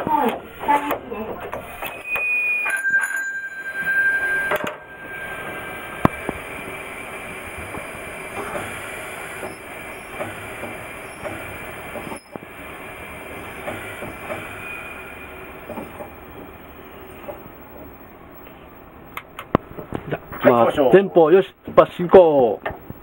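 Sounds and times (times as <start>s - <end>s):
railcar rumble: 0.0s - 19.2s
high steady tone: 1.5s - 8.3s.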